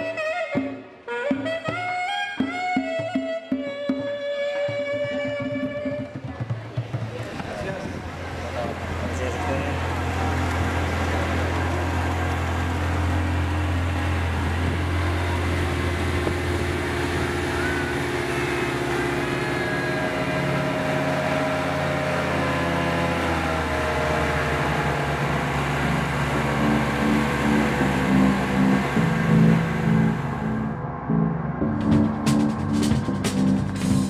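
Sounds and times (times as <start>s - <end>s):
motorboat engine running: 5.2s - 34.0s
water splashing against hull: 9.8s - 30.4s.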